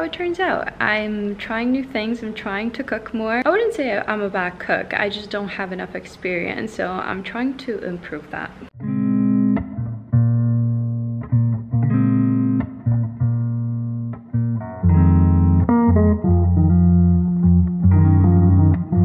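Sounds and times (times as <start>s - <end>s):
instrumental guitar music: 8.8s - 19.0s.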